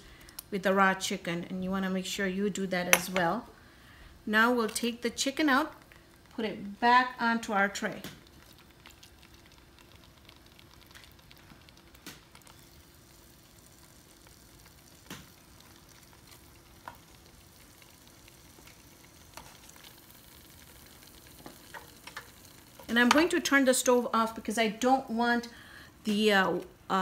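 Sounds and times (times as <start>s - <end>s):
curry simmering and bubbling: 5.3s - 6.4s, 7.6s - 24.4s.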